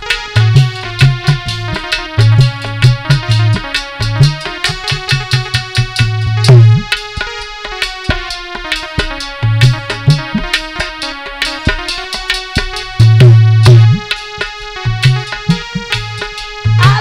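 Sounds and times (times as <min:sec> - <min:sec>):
hand drum beat: 0:15.0 - 0:17.0.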